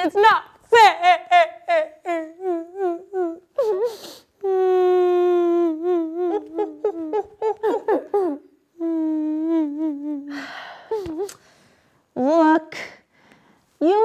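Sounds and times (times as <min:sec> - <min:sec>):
woman wailing and sobbing: 0:00.8 - 0:11.4.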